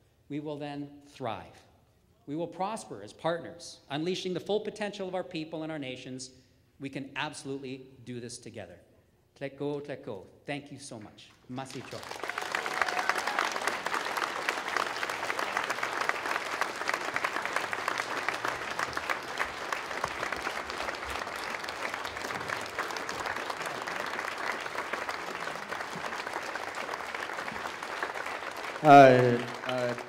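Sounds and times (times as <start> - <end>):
audience applauding: 11.5 - 30.0.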